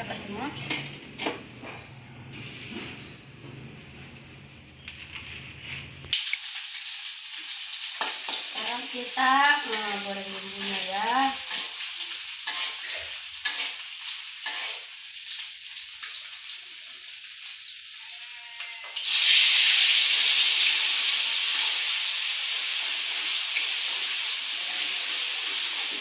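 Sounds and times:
paste frying in oil: 6.1s - 26.0s
metal spatula scraping wok: 10.4s - 15.0s.

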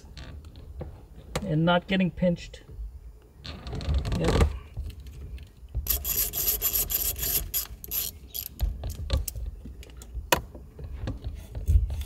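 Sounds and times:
hand ratchet clicking: 5.8s - 8.6s.

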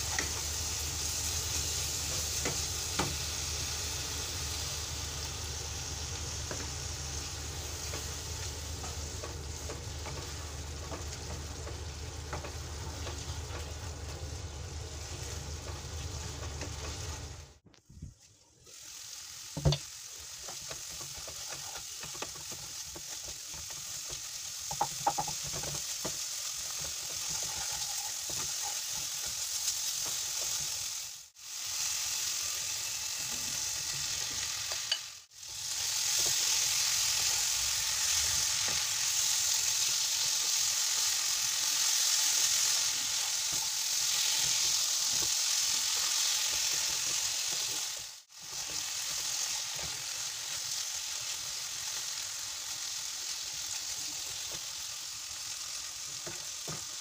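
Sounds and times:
food sizzling in a pan: 0.0s - 17.6s, 18.2s - 57.0s
wooden spatula scraping a pan: 20.4s - 30.9s.

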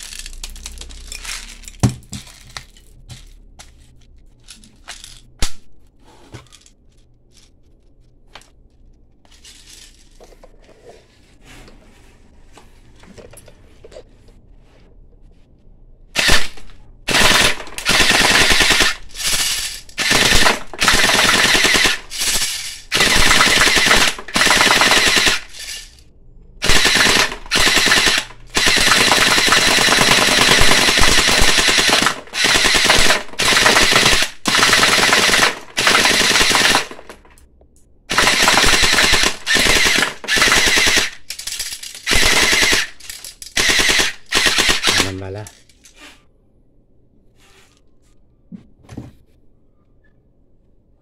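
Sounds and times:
pellet gun firing bursts: 16.2s - 25.8s, 26.6s - 37.2s, 38.1s - 41.3s, 42.0s - 45.2s.

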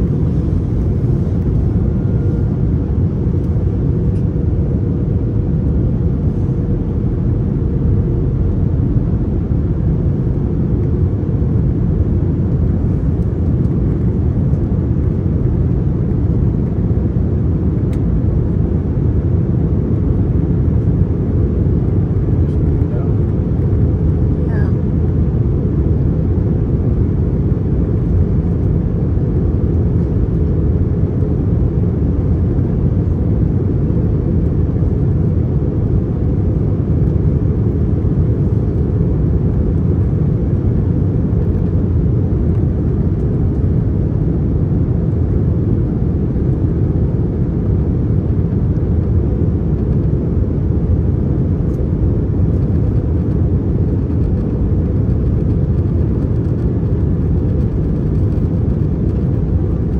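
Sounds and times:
jet engine cabin drone: 0.0s - 59.9s.

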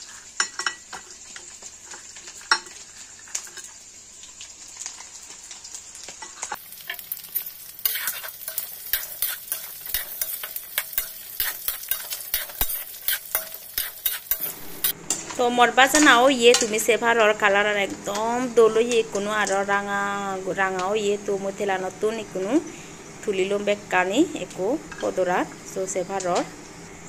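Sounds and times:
spoon stirring and scraping pan: 0.0s - 3.8s, 6.1s - 16.9s
chicken sizzling in hot oil: 0.0s - 27.0s.

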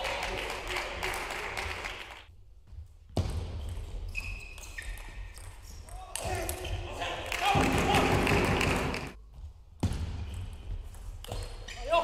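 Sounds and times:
short high squeaks: 4.1s - 5.9s.

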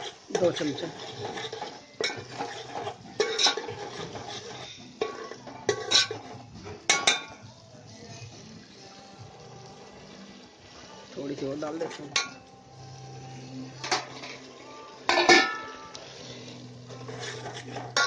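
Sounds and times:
stirring thick sauce: 0.0s - 6.5s, 15.9s - 18.0s
metal spoon clinking on steel pot: 0.0s - 7.4s, 12.1s - 12.5s, 15.1s - 16.0s.

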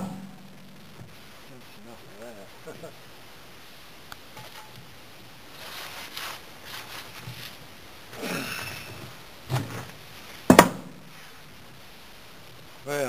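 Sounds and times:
dull thud: 0.0s - 1.2s, 10.5s - 11.1s
scraping on gravel and brick: 5.5s - 10.4s.

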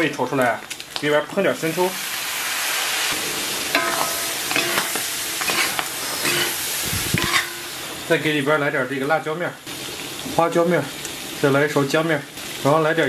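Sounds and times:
meat sizzling in a wok: 0.0s - 13.0s
soy sauce hissing on hot metal: 1.4s - 13.0s
metal spatula scraping a wok: 3.1s - 8.0s.

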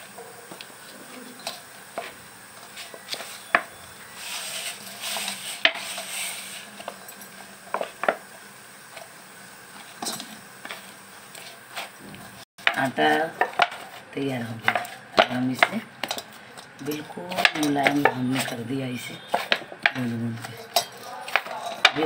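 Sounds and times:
hands kneading dough: 9.6s - 22.0s.

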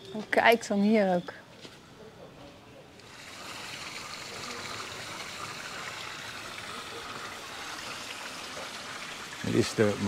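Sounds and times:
fountain water splashing into basin: 3.0s - 10.0s.

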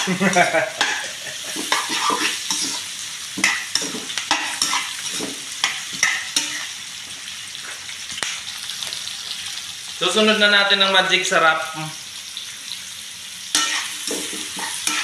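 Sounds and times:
vegetables sizzling in oil: 0.0s - 15.0s
spatula scraping a wok: 0.8s - 6.8s, 13.5s - 15.0s.

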